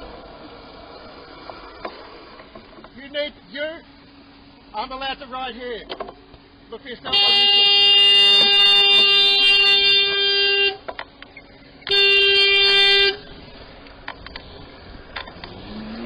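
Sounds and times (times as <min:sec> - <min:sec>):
horn blasts: 0:07.1 - 0:10.9, 0:11.8 - 0:13.3.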